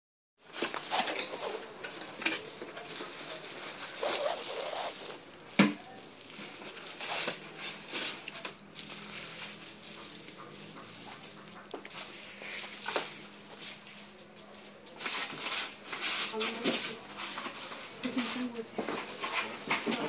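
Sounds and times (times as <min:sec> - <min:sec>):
cardboard packaging rustling: 0:00.4 - 0:14.1
plastic bags crinkling: 0:00.5 - 0:20.0.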